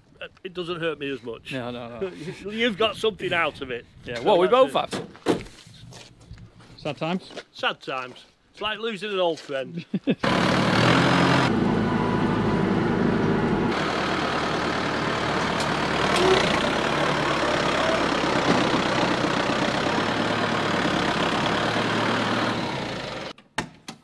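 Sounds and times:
tractor diesel engine running: 10.2 - 23.3.

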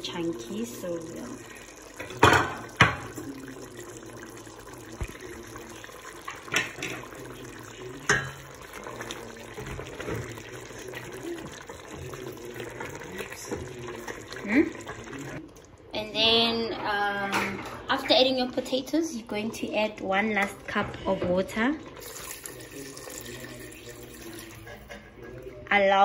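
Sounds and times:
sauce sloshing in a pot: 0.0 - 15.8, 20.4 - 25.4.

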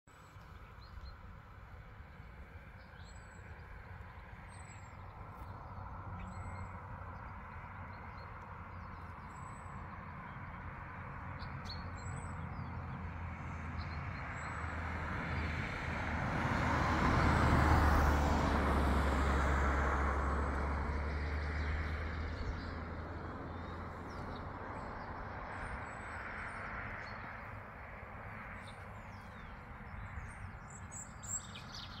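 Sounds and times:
road vehicle passing: 1.5 - 32.0
small birds chirping: 20.9 - 32.0.

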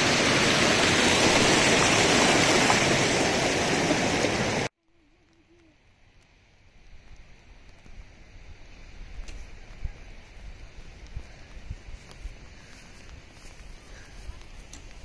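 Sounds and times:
stream rushing over rocks: 0.0 - 4.7
faint hiss of rain: 0.0 - 15.0.

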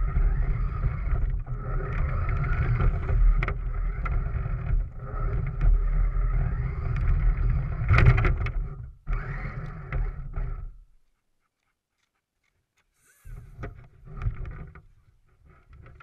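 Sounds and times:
remote control car motor whine: 0.0 - 8.3, 9.1 - 10.7.

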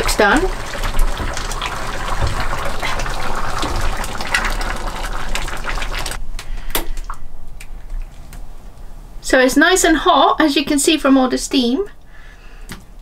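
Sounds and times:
soup bubbling and hissing: 0.0 - 6.2.

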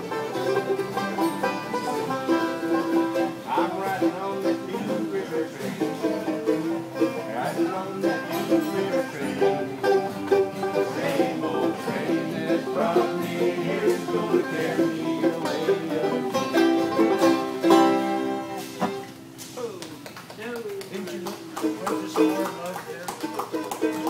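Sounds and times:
fiddle: 0.0 - 19.1
banjo: 0.0 - 19.2, 21.6 - 24.0
resonator guitar: 0.0 - 19.8, 21.2 - 24.0
upright bass: 0.0 - 19.8
acoustic guitars: 0.0 - 24.0.

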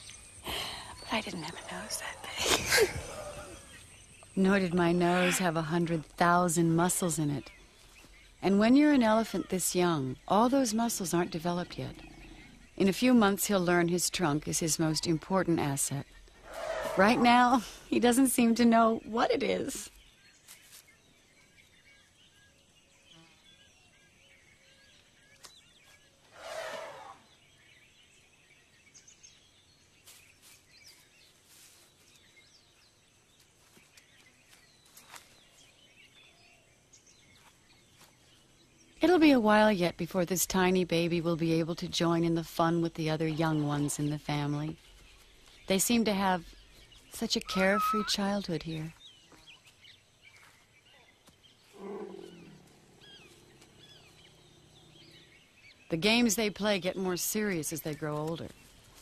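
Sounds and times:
small birds chirping: 0.0 - 59.0
elephant low call: 47.4 - 48.4
faint high chirps: 47.4 - 49.4.

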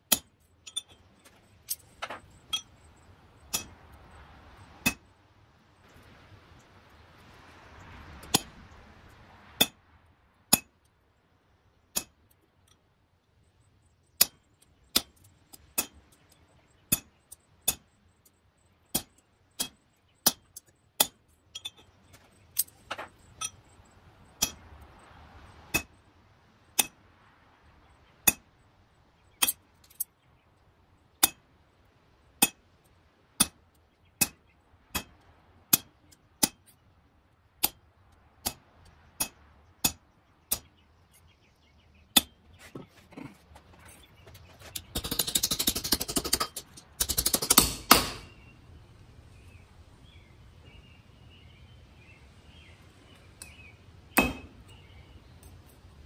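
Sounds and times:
hammer striking chisel on metal: 3.5 - 3.8, 11.9 - 12.2, 16.9 - 17.9, 18.9 - 21.8, 24.4 - 24.7, 25.7 - 25.9, 39.2 - 40.7, 44.6 - 48.4, 54.2 - 54.6.

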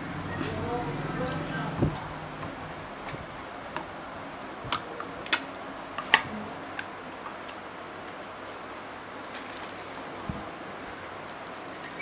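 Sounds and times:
clicks and crackles of food handling: 4.7 - 7.7, 8.4 - 12.0.

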